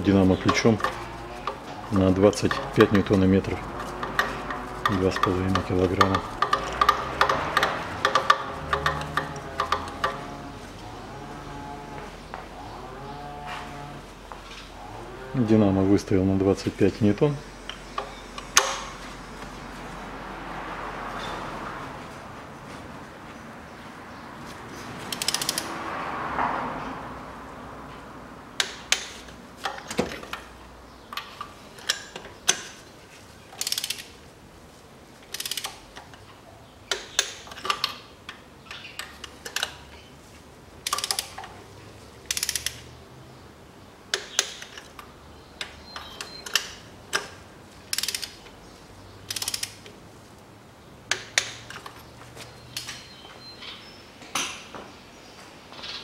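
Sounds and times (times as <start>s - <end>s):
torque wrench clicking: 25.1s - 25.7s, 33.6s - 34.1s, 35.3s - 36.1s, 40.8s - 41.5s, 42.3s - 42.9s, 45.6s - 48.5s, 49.2s - 49.9s.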